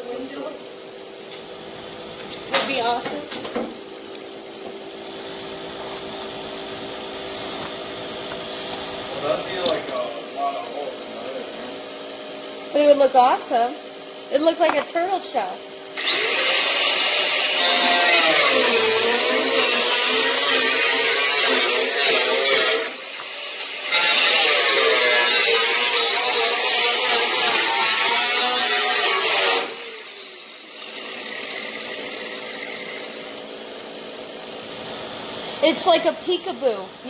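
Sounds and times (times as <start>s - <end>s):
cut-off tool cutting metal: 16.0s - 33.6s.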